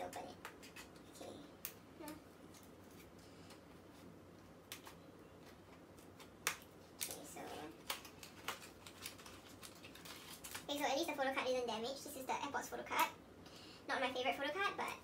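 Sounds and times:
plastic rustle: 0:07.0 - 0:10.9.

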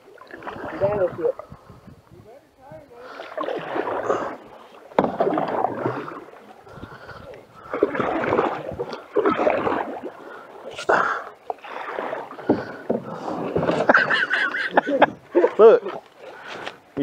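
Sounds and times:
paddle splashing in water: 0:00.0 - 0:01.7, 0:02.9 - 0:17.0.

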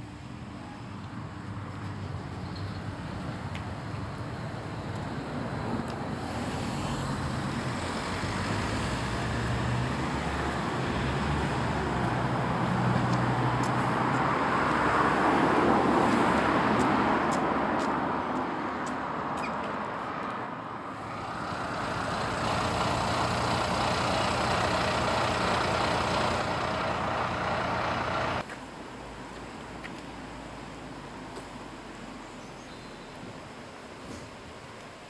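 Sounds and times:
vehicle passing: 0:06.2 - 0:28.4.

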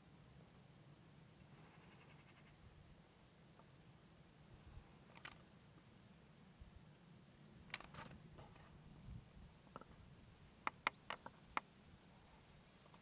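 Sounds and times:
camera handling rumble: 0:05.1 - 0:05.4, 0:07.7 - 0:08.8
small sharp clicks: 0:05.1 - 0:05.5, 0:07.6 - 0:08.2, 0:10.6 - 0:11.7.

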